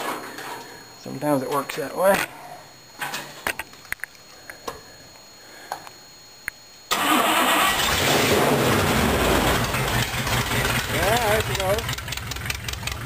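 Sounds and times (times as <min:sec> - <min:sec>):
car engine starting and running: 0:06.9 - 0:13.0.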